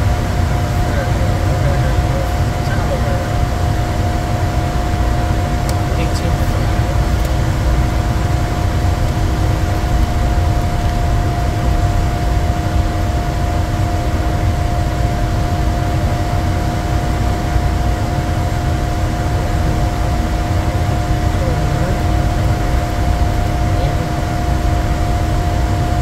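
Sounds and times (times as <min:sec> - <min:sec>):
deep rumble of jet cabin: 0:00.0 - 0:26.0
steady hums: 0:00.0 - 0:26.0.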